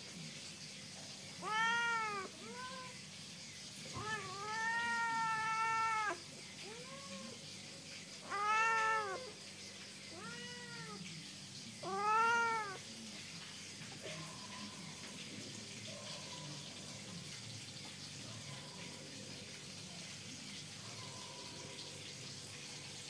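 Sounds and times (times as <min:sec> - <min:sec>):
cat meowing: 0:01.4 - 0:03.0, 0:03.9 - 0:07.4, 0:08.2 - 0:09.4, 0:10.1 - 0:11.1, 0:11.8 - 0:12.9.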